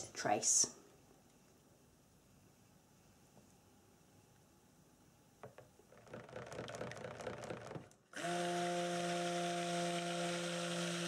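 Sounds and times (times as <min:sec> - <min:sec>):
stick blender motor hum: 0:06.1 - 0:11.0.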